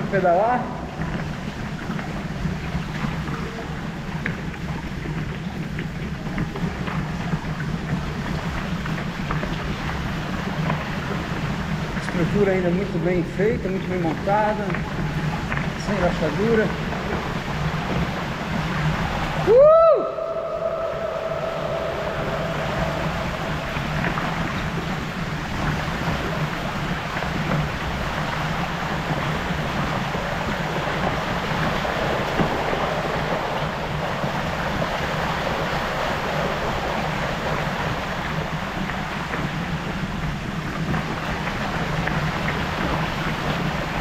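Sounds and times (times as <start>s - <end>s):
bike tyres splashing through water: 0.0s - 44.0s
low rumble: 16.7s - 27.5s.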